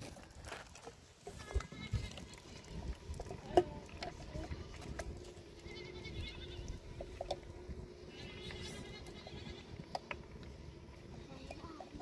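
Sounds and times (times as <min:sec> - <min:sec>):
livestock bleating: 0:05.5 - 0:06.9, 0:08.1 - 0:09.8.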